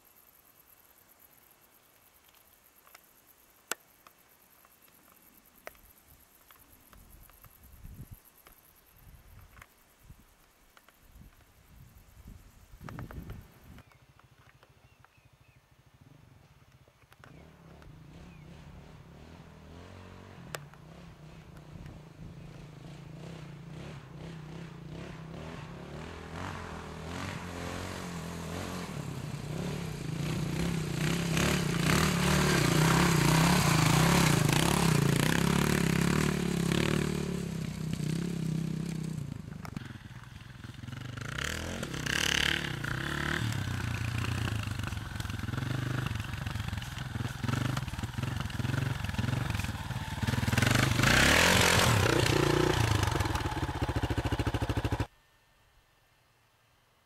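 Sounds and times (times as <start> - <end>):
off-road motorcycle engine: 12.2 - 55.1
dirt bike engine running close: 17.2 - 55.1.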